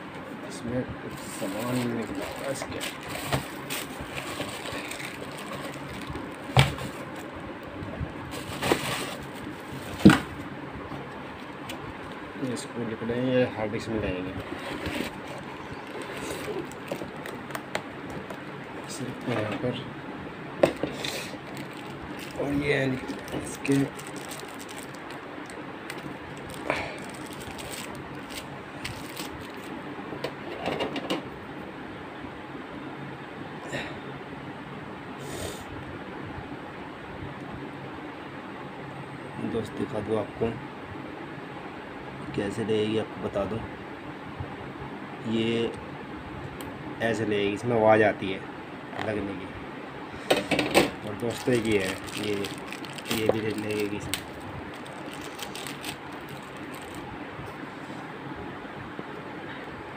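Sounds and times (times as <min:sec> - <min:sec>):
steady background noise: 0:00.0 - 0:59.9
plastic bag crinkling: 0:01.2 - 0:07.3, 0:08.3 - 0:10.3, 0:14.7 - 0:17.6, 0:21.4 - 0:29.8, 0:51.0 - 0:57.1.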